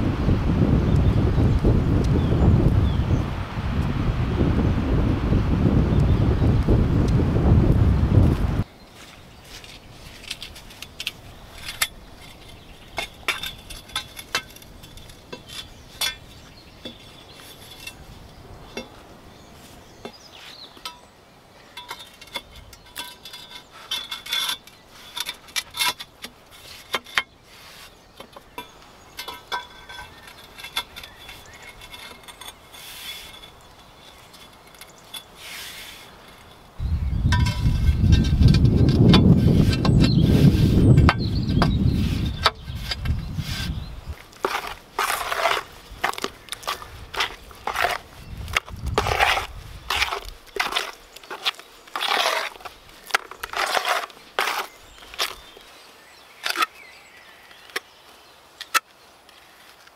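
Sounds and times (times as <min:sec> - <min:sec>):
steel bars clinking on concrete: 0:21.7 - 0:27.3, 0:28.2 - 0:35.4.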